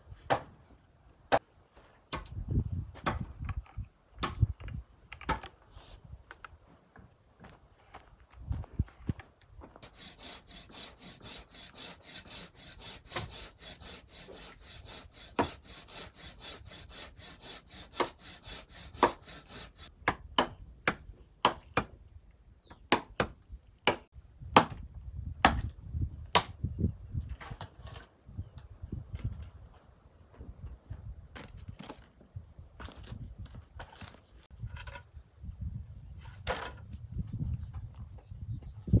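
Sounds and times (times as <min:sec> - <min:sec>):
knife chopping wooden poles: 0:00.3 - 0:00.5, 0:09.9 - 0:21.9, 0:22.8 - 0:24.8, 0:25.4 - 0:25.7, 0:26.4 - 0:26.6
rapid scraping or sawing: 0:09.8 - 0:19.9.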